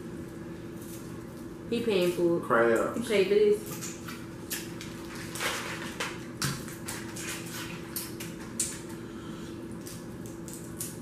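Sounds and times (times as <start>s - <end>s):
steady hum: 0.0s - 11.0s
shells crackling and snapping: 9.8s - 11.0s.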